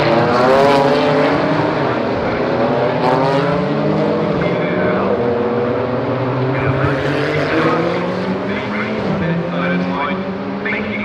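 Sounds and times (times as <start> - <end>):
race car engines running hard: 0.0 - 11.0.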